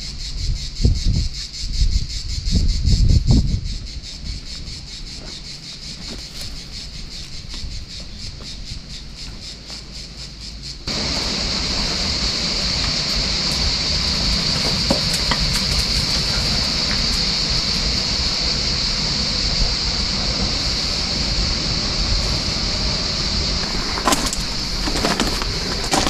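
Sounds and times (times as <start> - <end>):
cicadas singing: 0.0 - 26.0
low rushing noise: 10.8 - 26.0.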